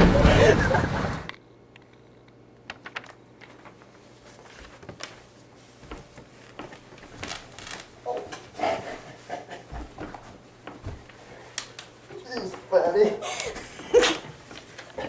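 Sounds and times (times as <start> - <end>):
faint clicks taps and rustles: 9.7 - 12.7.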